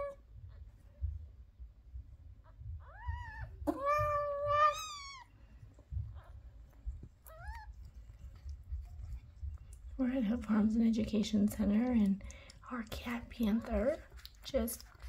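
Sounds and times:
cat mewing: 2.8s - 5.3s.

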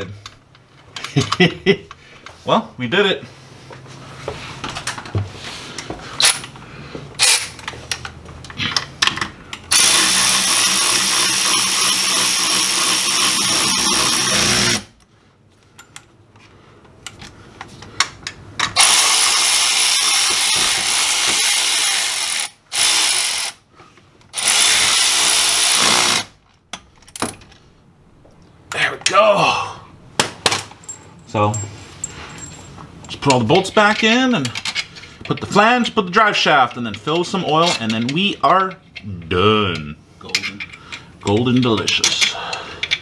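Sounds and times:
cordless drill spinning bolts: 9.7s - 14.9s, 18.8s - 23.6s, 24.4s - 26.3s.

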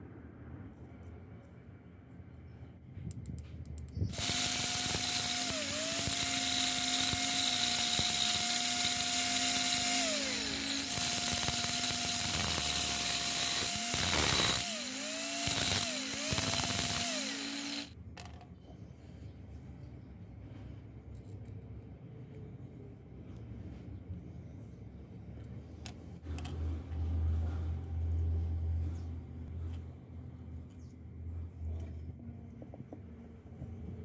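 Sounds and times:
cordless drill motor whine: 4.1s - 18.0s.

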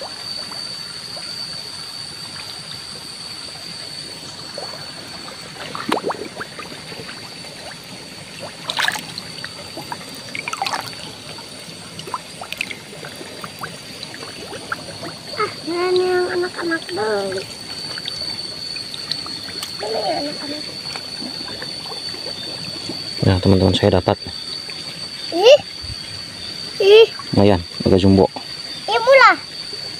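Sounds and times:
thin high tone: 0.0s - 29.9s
water trickling: 0.0s - 29.9s
splashes in muddy water: 8.6s - 9.2s, 10.4s - 11.0s.

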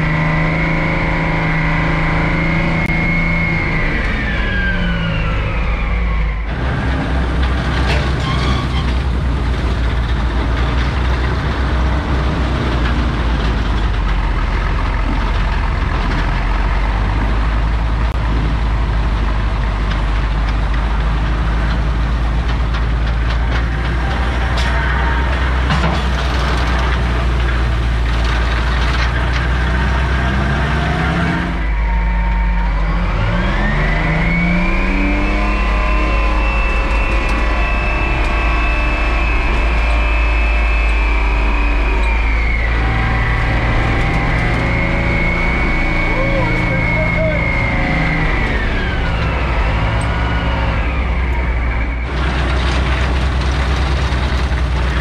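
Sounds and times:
machinery clanks and rattles: 0.0s - 55.0s
shovel engine running: 0.0s - 55.0s
truck engine revving: 0.0s - 55.0s.

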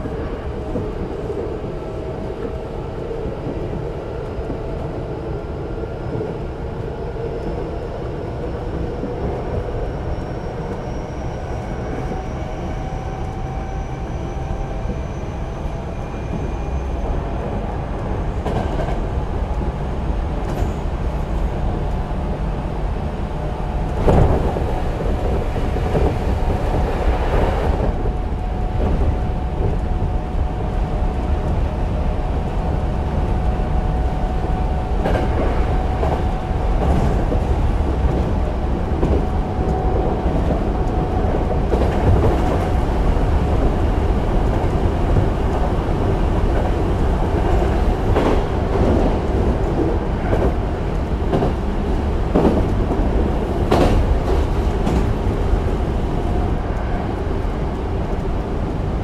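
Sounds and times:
train wheel and motor noise: 0.0s - 59.0s
rail-joint clicks: 20.4s - 21.2s.

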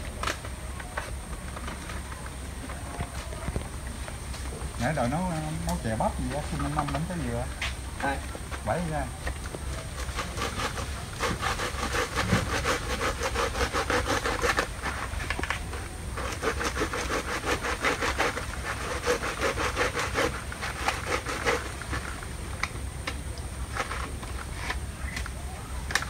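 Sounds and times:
rasping scraping strokes: 9.7s - 22.3s.

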